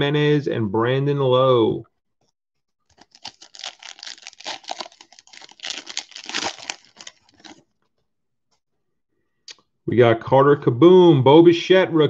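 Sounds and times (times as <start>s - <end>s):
foil wrapper tearing and crinkling: 2.9s - 7.6s.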